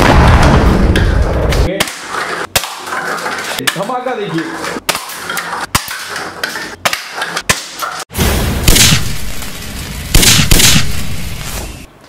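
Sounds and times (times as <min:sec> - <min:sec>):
deep boom: 0:00.0 - 0:01.5.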